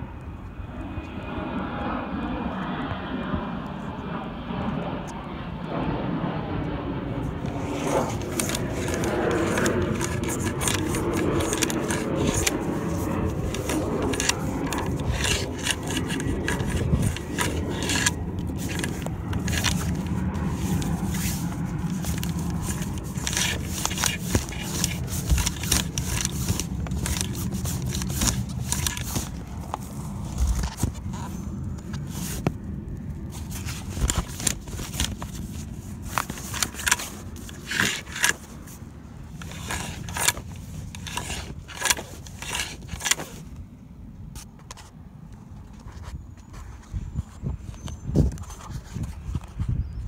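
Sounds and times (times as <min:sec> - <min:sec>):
sail cloth rustling: 0:07.4 - 0:32.6, 0:33.2 - 0:43.5
hand rubbing against phone: 0:07.5 - 0:32.5.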